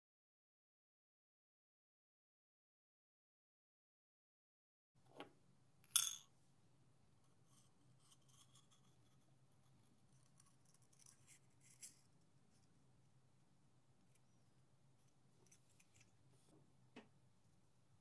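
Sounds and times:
knife blade clicking on shell: 5.9 - 6.2
blade scratching on shell: 10.2 - 12.1.

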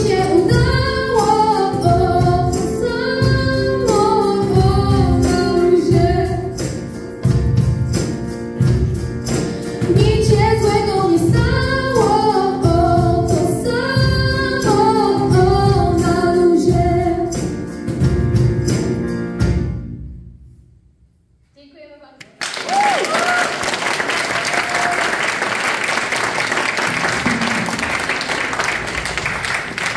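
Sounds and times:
percussion beat: 0.0 - 19.2, 26.2 - 29.9
piano: 0.0 - 21.0, 22.5 - 29.9.

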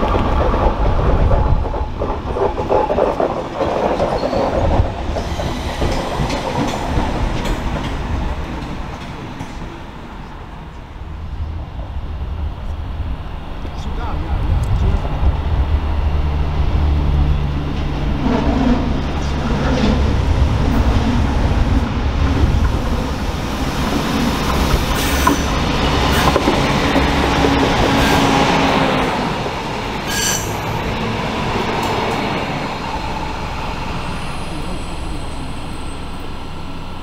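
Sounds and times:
train engines droning: 0.0 - 37.0
train rolling noise: 0.0 - 37.0
wheel squeals: 30.1 - 30.7.

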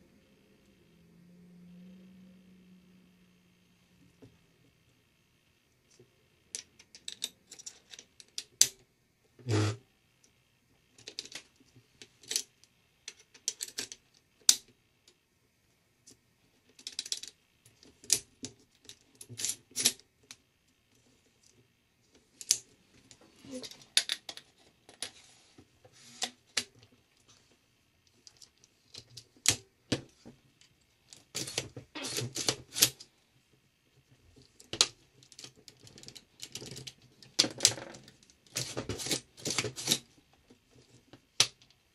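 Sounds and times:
metal parts clicking and rattling: 6.6 - 8.7, 13.1 - 14.6, 16.7 - 20.0, 34.4 - 40.1.

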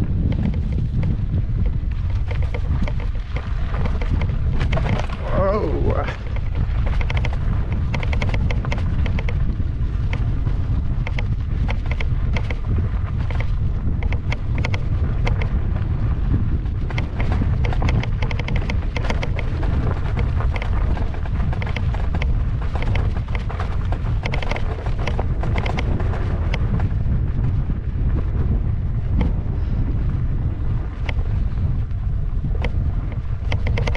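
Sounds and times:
clicks and rattles over ruts: 0.0 - 33.9
wind buffeting microphone: 0.0 - 33.9.

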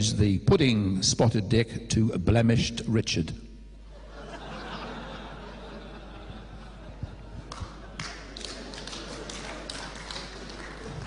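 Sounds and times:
audience laughing and murmuring: 3.9 - 11.0.

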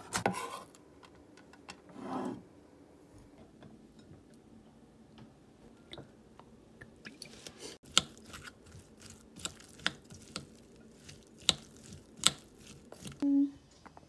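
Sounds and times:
wet squishing of mixed filling: 7.1 - 13.2.

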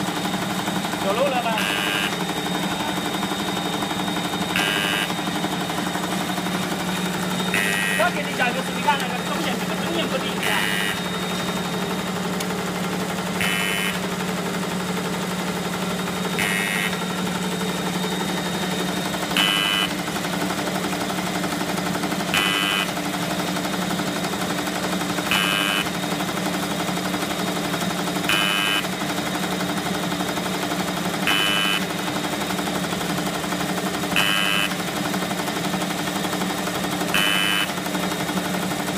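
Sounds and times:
packing machine humming: 0.0 - 38.9
short sharp machine burst: 6.4 - 12.2.

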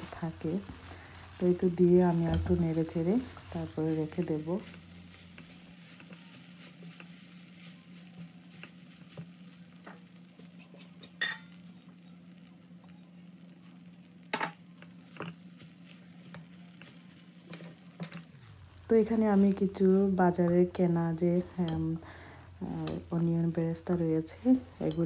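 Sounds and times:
spatula stirring rice in wok: 0.0 - 25.0.

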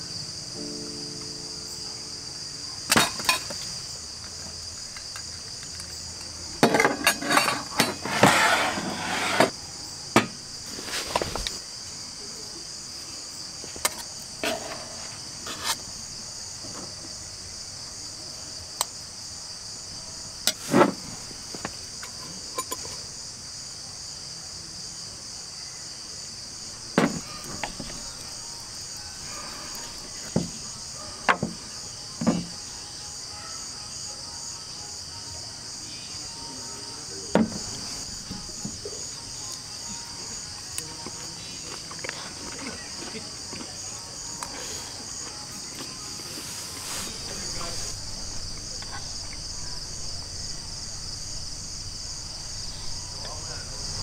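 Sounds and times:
crickets trilling: 0.0 - 54.0.

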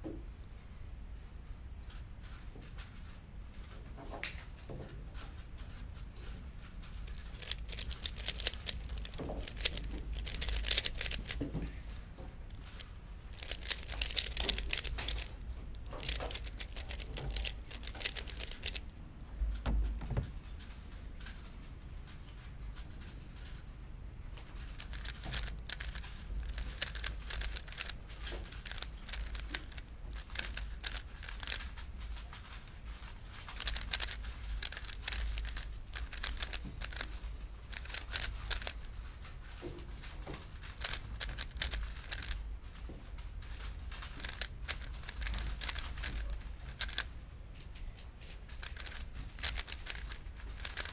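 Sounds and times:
plastic clicks of puzzle cube turning: 7.0 - 11.8, 12.5 - 18.9, 24.6 - 39.0, 40.0 - 47.1, 47.8 - 50.9.

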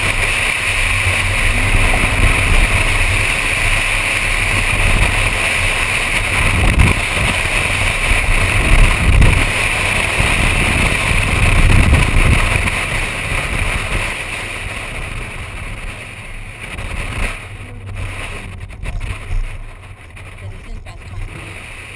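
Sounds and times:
car engine running hard: 0.0 - 21.9
wind noise on microphone: 0.0 - 21.9.

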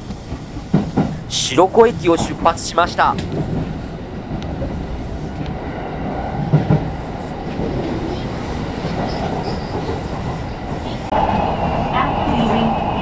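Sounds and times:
train low rumble: 0.0 - 13.0.

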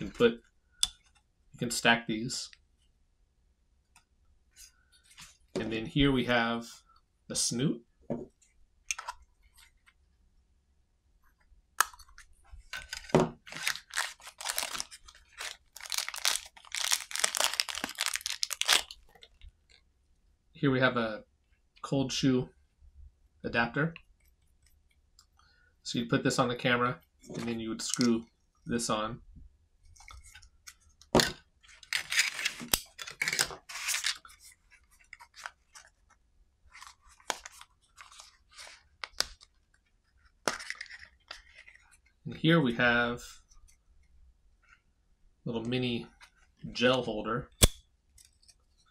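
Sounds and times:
plastic rustling: 12.6 - 19.8
plastic bag crinkling: 12.8 - 19.4.

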